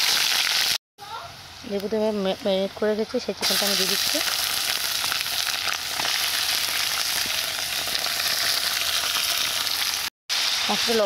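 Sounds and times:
chicken sizzling in oil: 0.0s - 0.8s, 3.4s - 11.0s.

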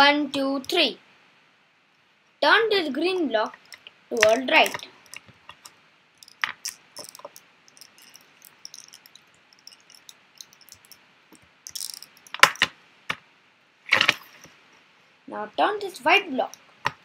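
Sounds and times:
plastic puzzle segments clicking: 3.6s - 11.0s, 11.7s - 12.7s
sharp plastic clacks: 3.6s - 13.2s.

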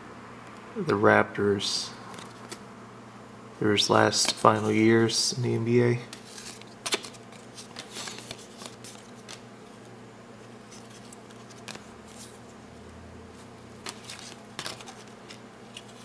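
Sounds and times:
steady low hum: 0.0s - 16.0s
cards flicking: 6.1s - 9.9s.

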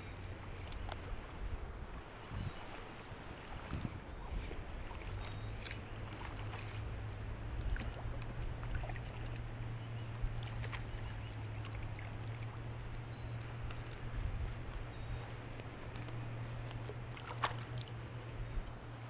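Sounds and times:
constant low hum: 0.0s - 19.0s
stream water rushing: 0.0s - 19.0s
faint ticks: 0.5s - 1.4s, 10.1s - 18.7s.

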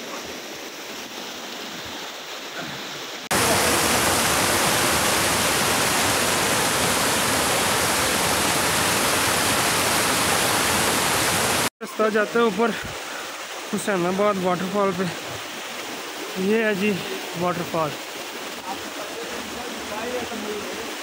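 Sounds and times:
waterfall rushing: 0.0s - 21.0s.

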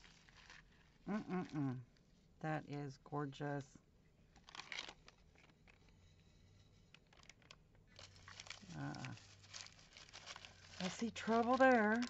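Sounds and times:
plastic bags crinkling: 0.0s - 1.7s, 4.4s - 5.8s, 7.0s - 12.0s.

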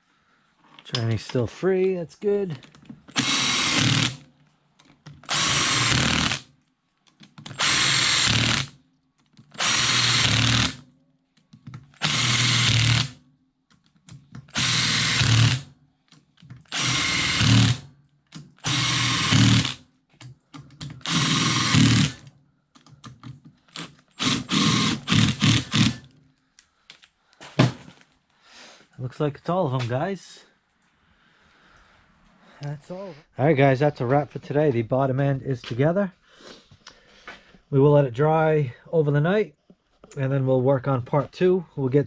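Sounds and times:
impact driver driving bolts: 16.5s - 19.8s, 20.6s - 26.1s.

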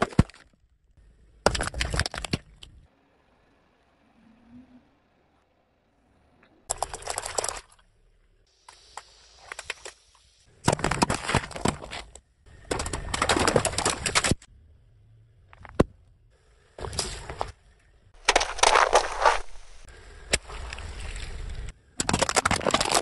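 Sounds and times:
tyre crushing plastic objects: 10.6s - 14.4s, 18.2s - 19.6s, 22.0s - 23.0s.

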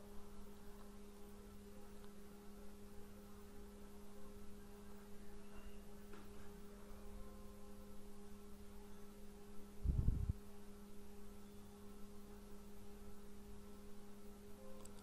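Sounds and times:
faint two-tone hum: 0.0s - 15.0s
low background rumble: 9.6s - 10.7s.

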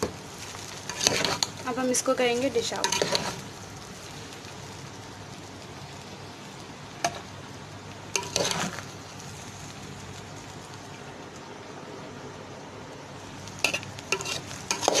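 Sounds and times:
steady hiss: 0.0s - 15.0s
spoon scraping and clattering: 0.9s - 1.5s, 2.8s - 3.4s, 8.2s - 8.8s, 13.6s - 15.0s
metal spoon clinking on pot: 2.8s - 3.3s, 8.2s - 8.6s.

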